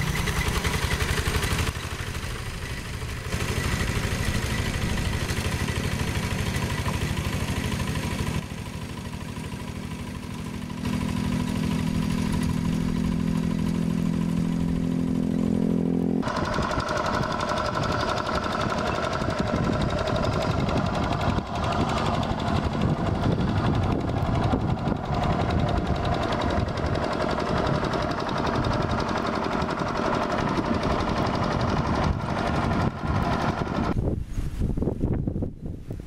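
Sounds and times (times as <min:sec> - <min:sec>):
diesel engine chugging: 0:00.0 - 0:34.0.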